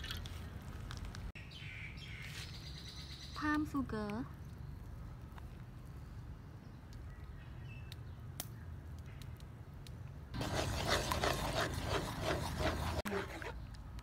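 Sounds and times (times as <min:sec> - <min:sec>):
spatula scraping and sloshing in wok: 0:10.4 - 0:13.6.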